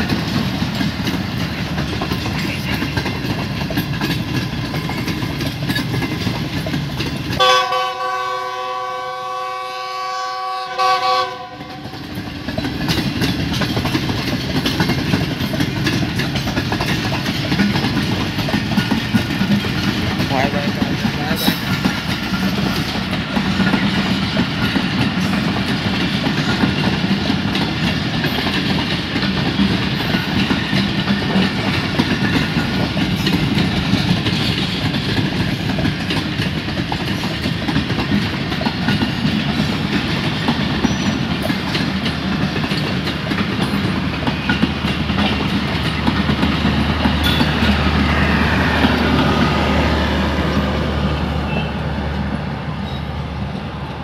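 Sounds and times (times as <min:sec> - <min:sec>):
clickety-clack over rail joints: 0:00.0 - 0:54.0
train wheels rumbling: 0:00.0 - 0:54.0.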